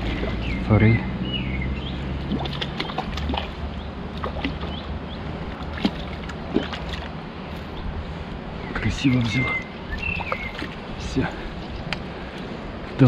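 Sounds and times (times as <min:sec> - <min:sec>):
small water splashes: 0:00.0 - 0:00.7, 0:02.0 - 0:07.2, 0:09.0 - 0:11.6.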